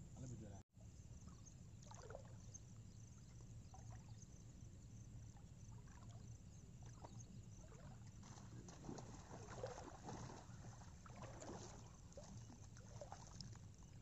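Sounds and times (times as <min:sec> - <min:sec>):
faint low rumble: 0:00.0 - 0:14.0
water sloshing: 0:06.8 - 0:14.0.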